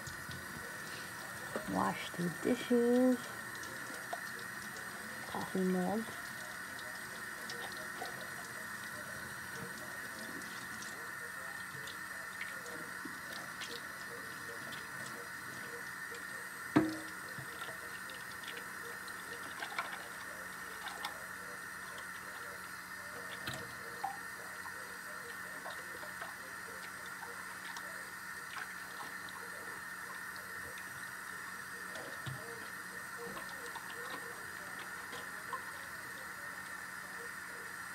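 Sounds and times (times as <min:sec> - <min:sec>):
tap running into sink: 0:16.7 - 0:18.0.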